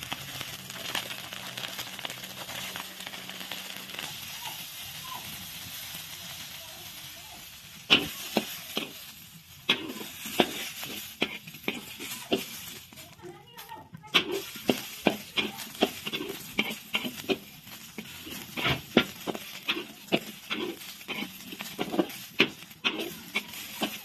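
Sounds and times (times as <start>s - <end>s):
faint sizzle: 0.0s - 24.0s
metal spatula clacking on wok: 14.1s - 24.0s.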